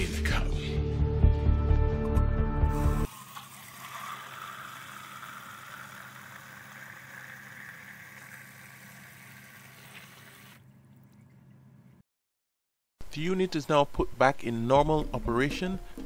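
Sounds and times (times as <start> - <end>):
water pouring into plastic bucket: 3.1 - 10.6.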